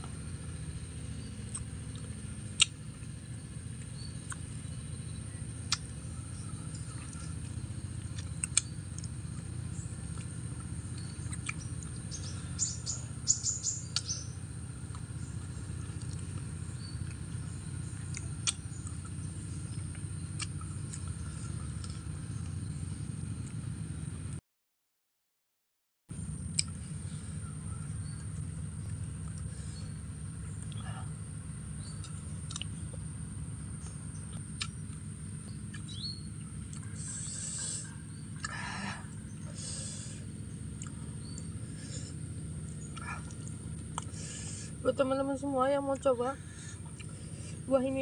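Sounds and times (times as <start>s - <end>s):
steady low hum: 0.0s - 24.4s, 26.1s - 48.0s
quick crunches of biting fruit: 1.5s - 2.8s, 5.7s - 5.9s, 8.1s - 9.1s, 11.0s - 11.9s, 18.1s - 19.0s, 31.8s - 32.8s, 34.6s - 34.8s, 36.7s - 38.7s
mouth clicks: 2.6s - 2.8s, 5.7s - 5.9s, 10.9s - 11.9s, 18.1s - 19.1s, 31.8s - 32.8s, 34.6s - 34.8s, 36.7s - 38.6s.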